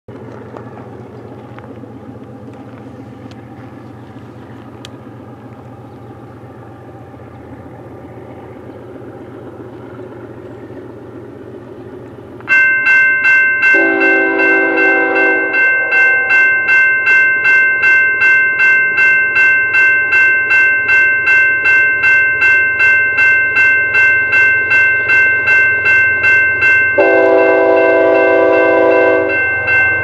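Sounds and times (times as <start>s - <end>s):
distant freight train rumble: 0.1s - 30.0s
crossing warning bell ringing: 0.2s - 30.0s
train horn: 13.7s - 16.7s, 27.0s - 29.5s.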